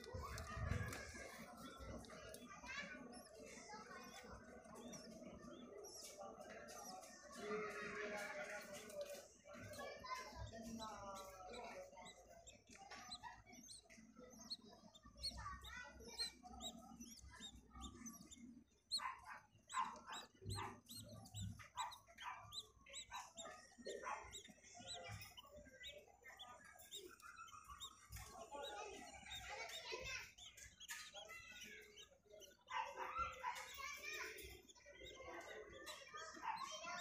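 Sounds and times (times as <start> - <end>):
budgerigar chicks cheeping: 0.0 - 37.0.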